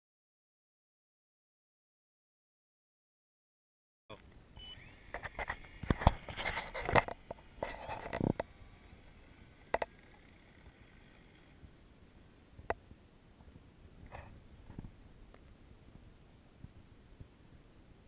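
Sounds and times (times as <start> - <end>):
isolated clicks: 4.1 - 11.1
model plane motor whine: 4.6 - 11.7
knocks and rustling on microphone: 14.0 - 15.0.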